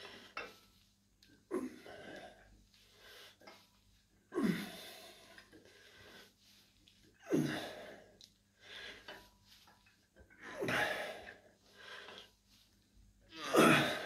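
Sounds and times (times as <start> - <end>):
man grunting and exhaling: 13.3 - 14.0.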